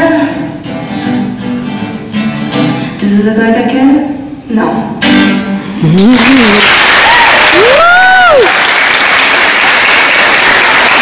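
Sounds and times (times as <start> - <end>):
audience applauding and cheering: 6.0 - 11.0
whoop: 7.0 - 8.7.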